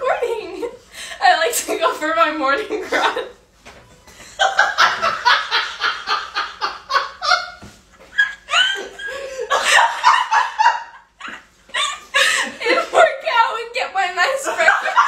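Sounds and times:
woman laughing: 0:04.4 - 0:13.2, 0:14.5 - 0:15.0.

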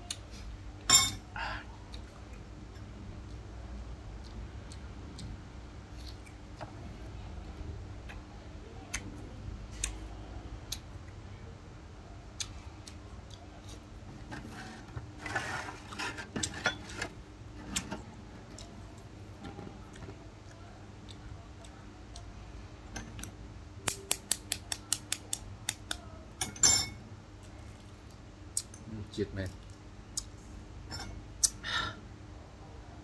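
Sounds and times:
steady low hum: 0:00.0 - 0:33.0
spoon and ice clinking dishes: 0:26.4 - 0:27.0.

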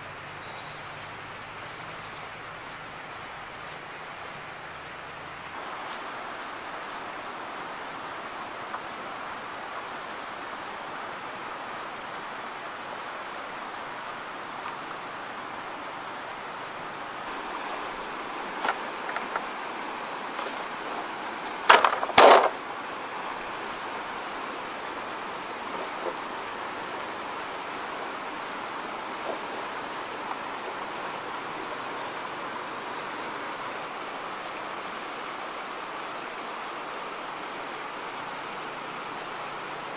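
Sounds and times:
insects droning: 0:00.0 - 0:39.9
hollow knocks of bamboo poles: 0:21.6 - 0:22.6.

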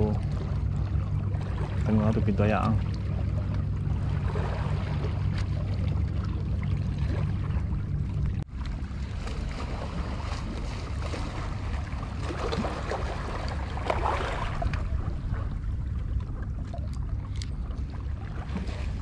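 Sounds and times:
sea water washing against rocks: 0:08.8 - 0:19.0.

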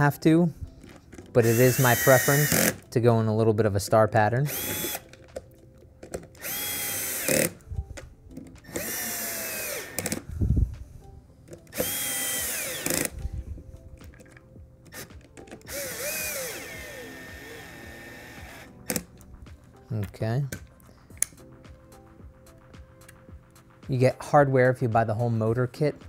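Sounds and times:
power drill whining: 0:01.4 - 0:02.8, 0:04.5 - 0:05.1, 0:06.4 - 0:07.6, 0:08.6 - 0:10.2, 0:11.7 - 0:13.2, 0:15.7 - 0:19.0.

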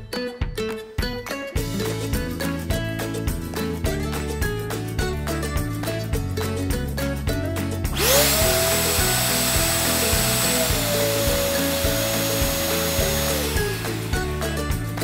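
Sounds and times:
vacuum motor whine: 0:08.0 - 0:14.6.

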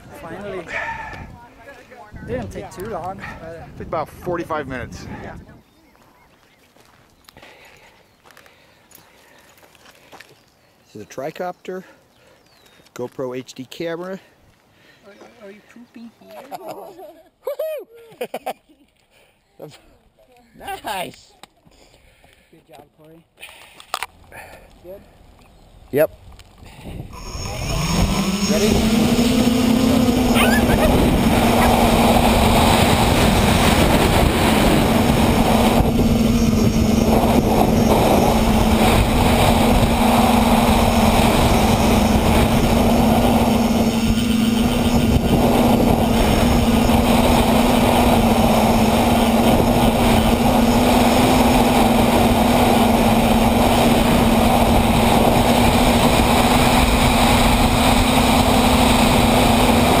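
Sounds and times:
electric motors humming: 0:27.2 - 1:00.0.

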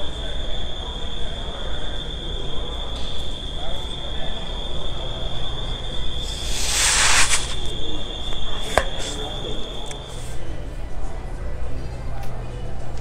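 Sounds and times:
breathy hiss of air: 0:06.2 - 0:07.7.

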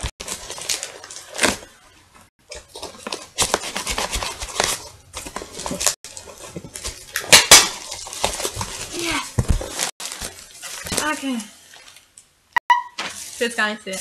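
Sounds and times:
tape ripping and rustling: 0:00.0 - 0:01.9, 0:02.5 - 0:11.4.

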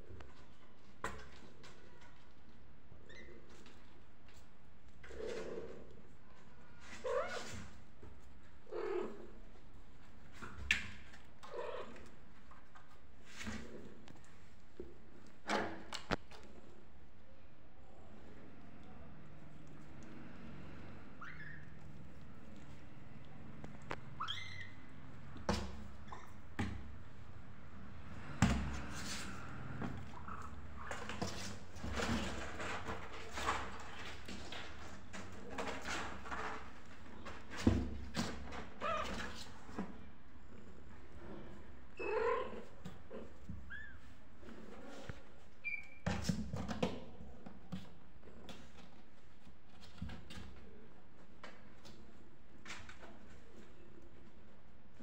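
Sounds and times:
kittens scuffling on a board: 0:25.2 - 0:40.2, 0:42.6 - 0:55.0.

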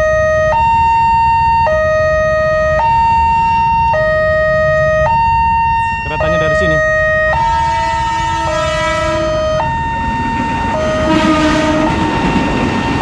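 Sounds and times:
electronic two-tone crossing alarm: 0:00.0 - 0:13.0.

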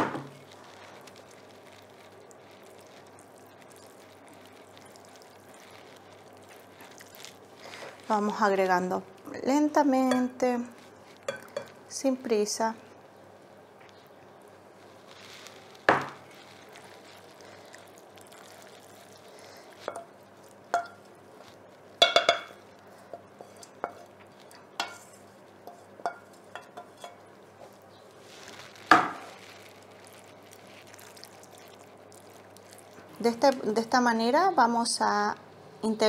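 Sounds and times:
utensil clinking against pan and bowl: 0:10.0 - 0:10.4, 0:11.3 - 0:11.8, 0:20.7 - 0:21.0, 0:22.0 - 0:27.2.

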